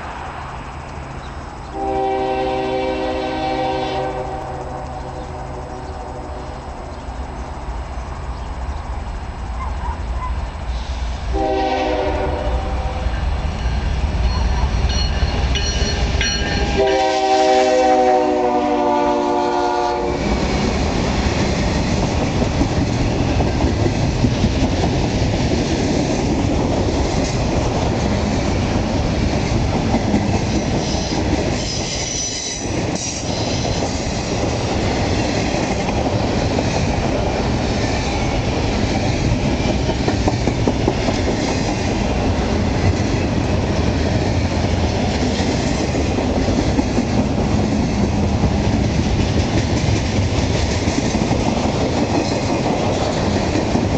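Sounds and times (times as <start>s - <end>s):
train wheels rumbling on rails: 0.0s - 53.9s
locomotive horn: 1.7s - 6.6s, 11.3s - 13.2s, 16.6s - 20.2s.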